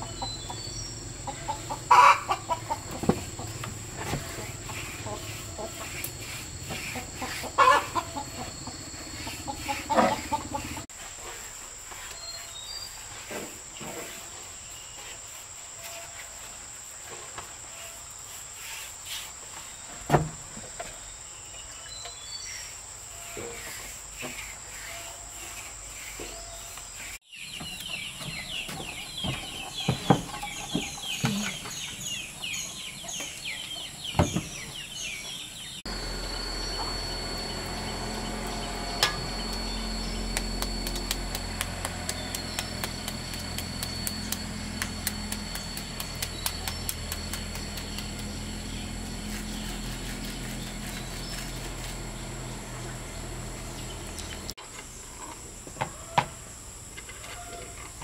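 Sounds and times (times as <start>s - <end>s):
chickens clucking and chirping: 0.0s - 10.9s, 23.3s - 54.6s
high insect drone: 0.0s - 27.2s, 28.2s - 57.9s.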